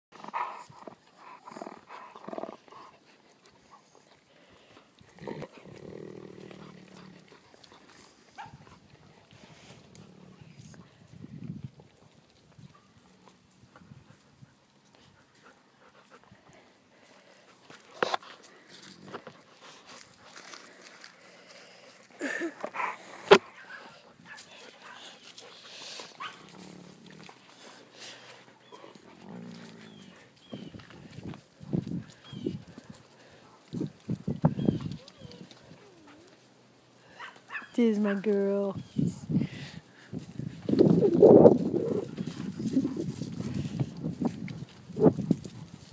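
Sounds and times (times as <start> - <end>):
faint rustling and handling noise: 0.5 - 45.9
wolves whining: 22.3 - 31.2, 34.4 - 37.9, 40.8 - 43.2
dog whining: 34.6 - 36.4.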